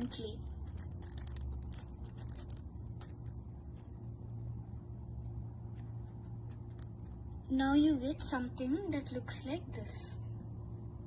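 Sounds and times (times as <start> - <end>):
paper strip rustling and crinkling: 0.0 - 7.4
steady low hum: 0.0 - 11.0.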